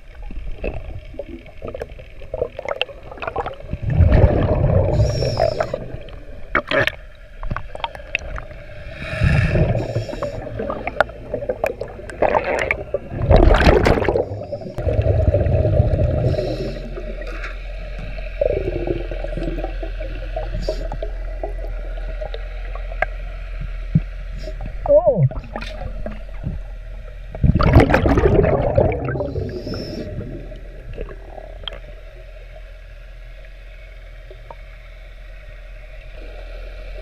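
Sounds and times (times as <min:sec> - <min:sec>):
underwater bubbles gurgling: 0:00.0 - 0:34.9
steady underwater hum: 0:00.0 - 0:37.0
sharp clicks underwater: 0:06.4 - 0:08.6, 0:09.6 - 0:15.1, 0:30.5 - 0:32.0.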